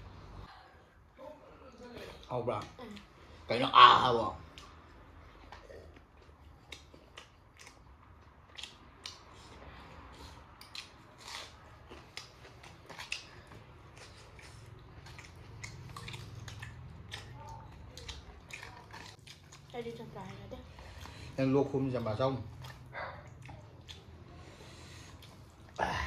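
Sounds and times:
person chewing food: 4.4 - 19.8, 20.7 - 25.9.

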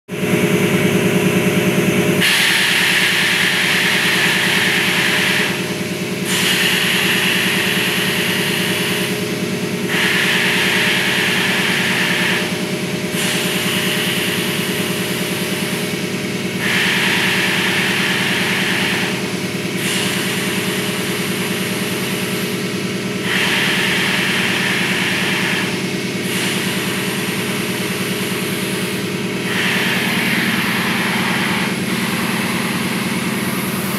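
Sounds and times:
compressed air hissing: 2.2 - 9.2, 23.2 - 33.9
low machine hum: 10.6 - 33.9.

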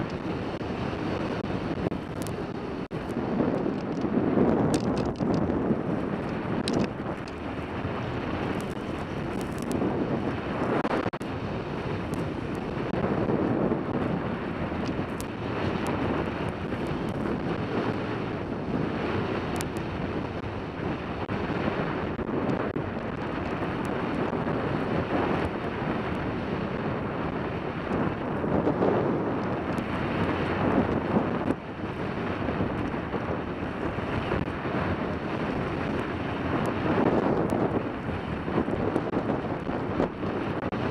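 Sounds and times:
skis sliding over snow: 0.0 - 20.4
wind rushing over microphone: 0.0 - 40.9.

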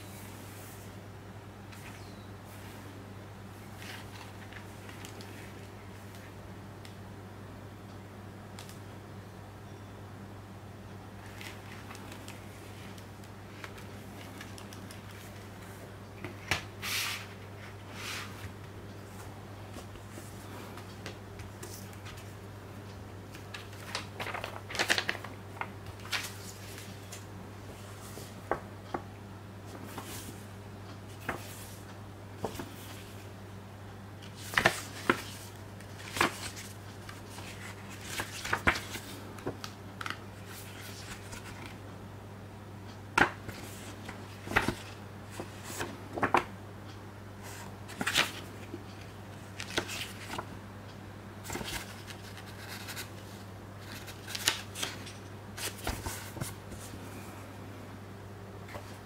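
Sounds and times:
booklet pages turning: 3.7 - 5.7, 11.2 - 22.4, 23.3 - 29.0, 29.7 - 30.4, 31.1 - 33.2, 34.2 - 41.8, 43.2 - 46.5, 47.4 - 50.5, 51.4 - 57.0.

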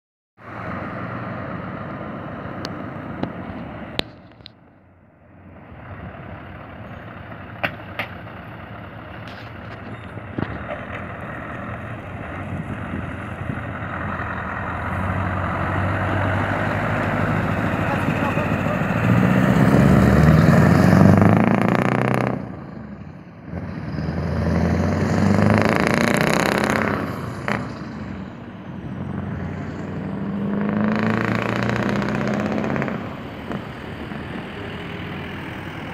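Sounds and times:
diesel truck engine running: 0.4 - 35.9.

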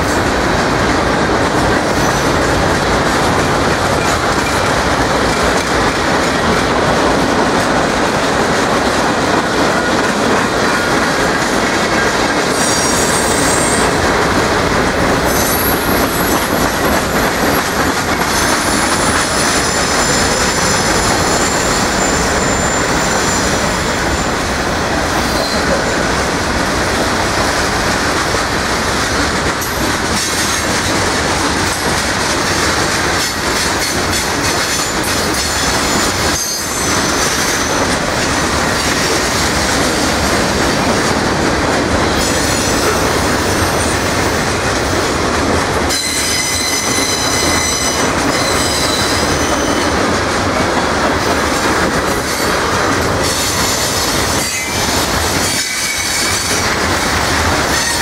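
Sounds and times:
freight train wheels rolling on rails: 0.0 - 58.0
high-pitched metallic wheel squealing: 18.4 - 24.4.

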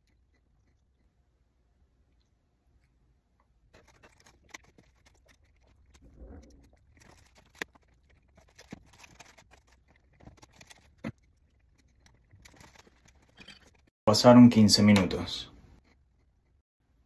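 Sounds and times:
foil and takeout box crinkling: 6.7 - 13.9.

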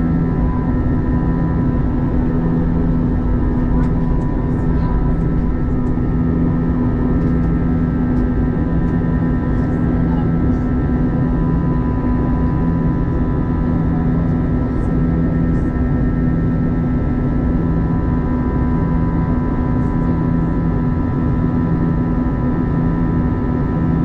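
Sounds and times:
aircraft cabin engine drone: 0.0 - 24.0.

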